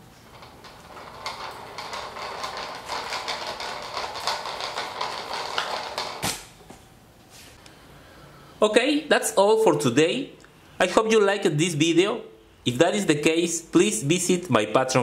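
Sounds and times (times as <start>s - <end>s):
toy truck rolling on tiled floor: 0.0s - 6.2s.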